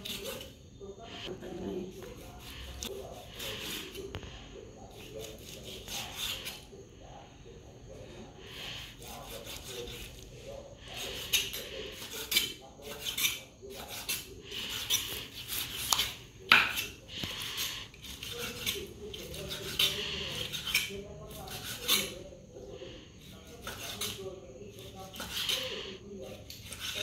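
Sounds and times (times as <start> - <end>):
knife slicing raw liver: 2.0 - 4.2, 4.9 - 6.7, 9.0 - 10.2, 10.9 - 22.2, 23.2 - 27.0.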